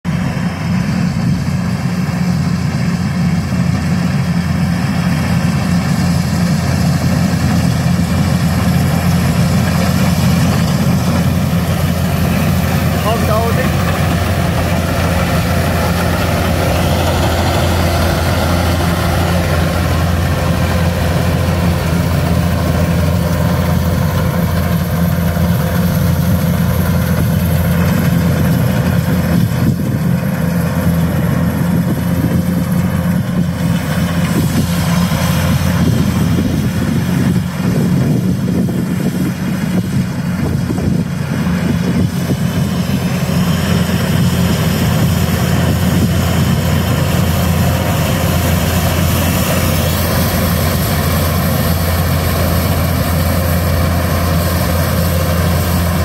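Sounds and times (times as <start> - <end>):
combine harvester droning: 0.1 - 56.0.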